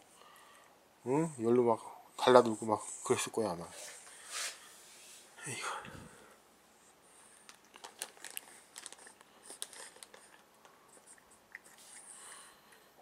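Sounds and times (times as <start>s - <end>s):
cat chewing crunches: 7.4s - 12.9s.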